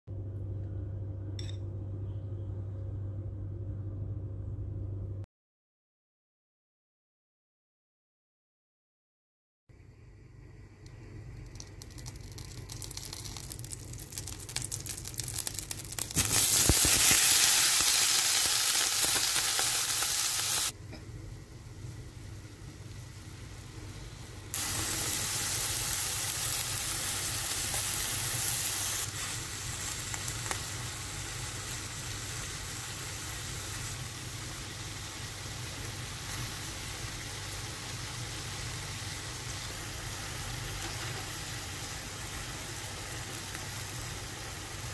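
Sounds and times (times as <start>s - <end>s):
food sizzling in a pan: 11.8s - 20.8s, 21.7s - 44.9s.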